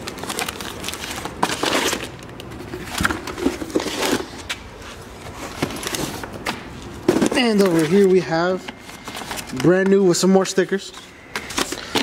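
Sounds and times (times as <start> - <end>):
plastic shrink wrap crinkling: 0.0 - 4.6
cardboard boxes rustling: 0.1 - 10.2.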